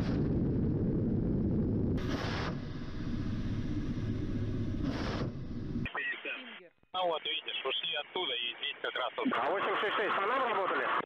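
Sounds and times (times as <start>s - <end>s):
helicopter engines and rotor rumble: 0.0s - 5.9s.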